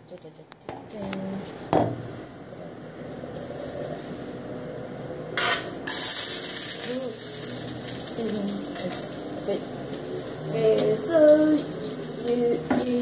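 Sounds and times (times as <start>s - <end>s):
gas stove hissing: 0.7s - 13.0s
loud high hiss: 5.4s - 13.0s.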